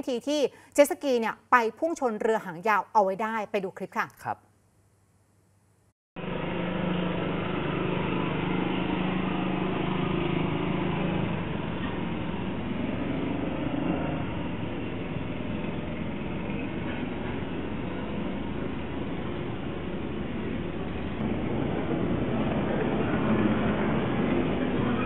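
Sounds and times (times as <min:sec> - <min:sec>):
steady noise: 0:05.5 - 0:25.0
boat engine running: 0:06.2 - 0:25.0.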